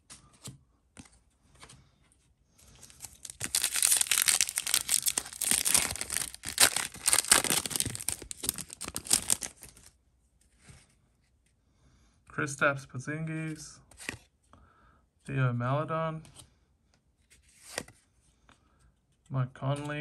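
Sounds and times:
plastic wrapper tearing and crinkling: 2.8 - 9.9.

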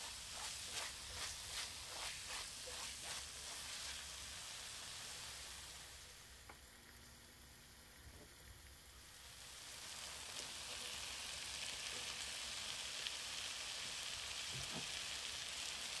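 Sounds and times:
spatula scraping a wok: 0.0 - 4.4
onions sizzling in a wok: 0.0 - 16.0.

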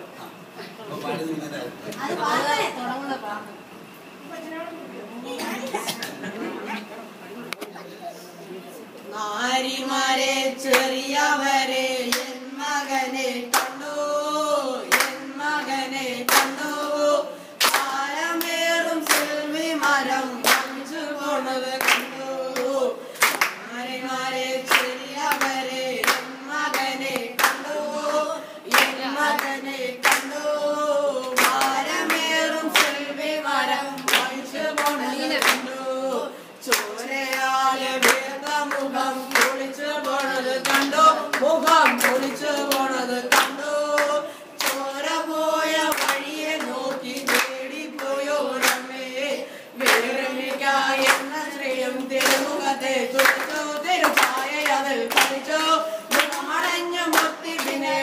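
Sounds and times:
boys singing together: 9.1 - 58.0
hand claps: 12.1 - 12.3, 13.5 - 13.8, 14.9 - 15.3, 16.3 - 16.9, 17.6 - 20.8, 21.8 - 23.7, 24.7 - 30.4, 31.2 - 33.0, 34.0 - 35.7, 36.7 - 44.9, 45.9 - 48.9, 49.8 - 51.3, 52.0 - 52.6, 53.2 - 58.0.

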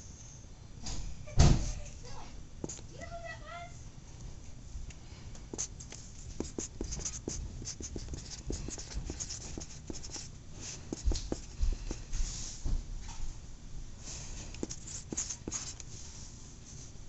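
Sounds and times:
marker squeaking on smooth surface: 5.5 - 10.3, 10.9 - 12.0, 14.6 - 15.8.

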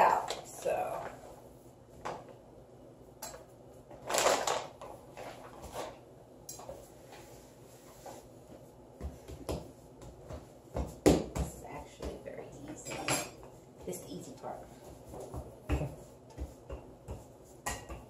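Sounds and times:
utensils and dishes clattering: 12.8 - 13.4.

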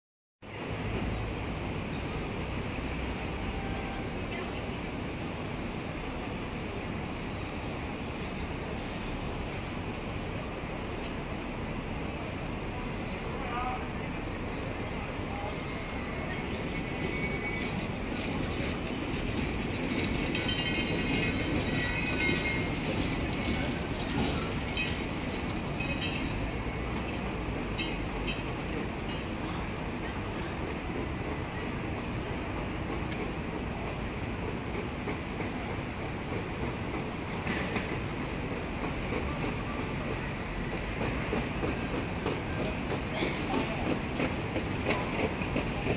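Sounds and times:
city street noise: 0.4 - 45.9
tram rolling on rails: 0.4 - 45.9.

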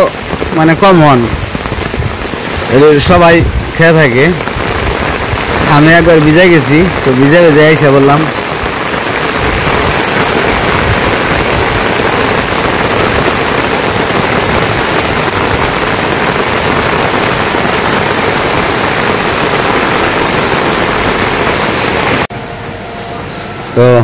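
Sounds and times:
heavy rain pouring: 0.0 - 24.0.

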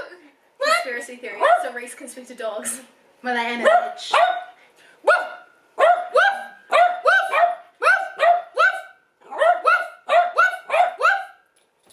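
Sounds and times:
small dog yapping: 5.1 - 11.4.

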